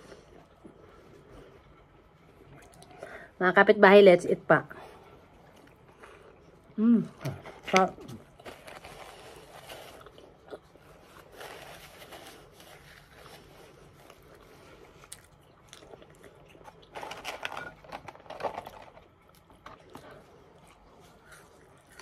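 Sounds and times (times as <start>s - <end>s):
chewing and biting food: 5.2s - 22.0s
paper carton crackling: 7.7s - 10.1s.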